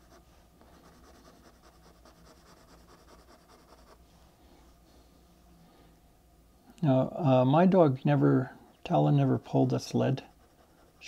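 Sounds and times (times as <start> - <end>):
pencil scratching on paper: 0.0 - 4.0, 10.2 - 11.0.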